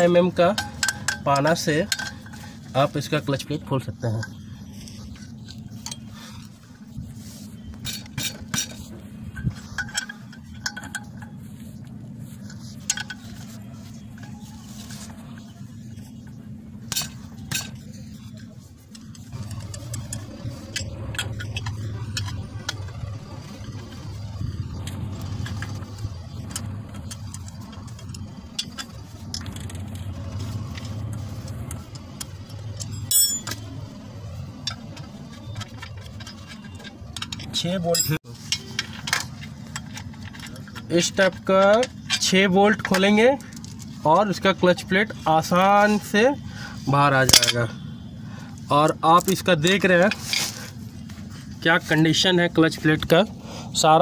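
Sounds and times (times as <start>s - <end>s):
spanner clinking against bolts: 0.0s - 6.5s, 7.7s - 15.2s, 16.8s - 46.4s, 47.2s - 53.3s
steady low hum: 0.0s - 54.0s
sharp ringing metallic clink: 32.8s - 33.6s.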